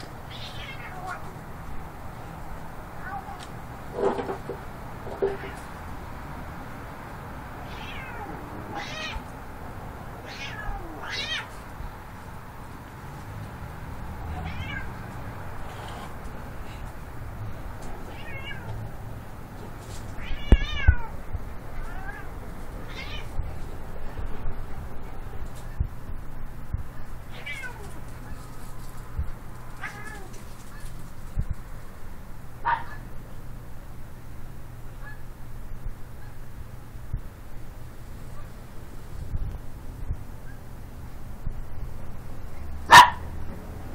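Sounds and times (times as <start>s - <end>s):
cat meowing: 0.3s - 1.4s, 3.0s - 3.5s, 7.6s - 9.3s, 10.2s - 11.6s, 14.3s - 15.0s, 18.0s - 18.7s, 20.2s - 21.1s, 21.8s - 23.4s, 27.3s - 28.0s, 29.8s - 30.4s.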